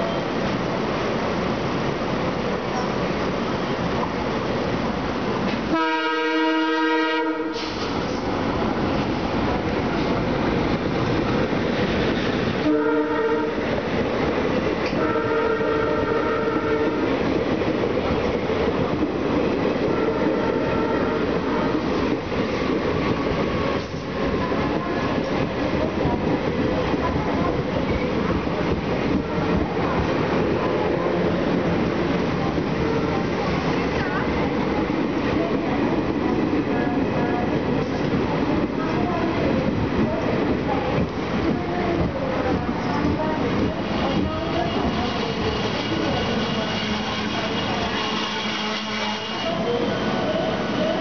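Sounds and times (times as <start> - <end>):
train rolling past: 0.0 - 51.0
locomotive horn blaring: 5.7 - 7.7, 12.6 - 13.7, 14.9 - 17.2, 19.9 - 21.8, 44.1 - 49.8.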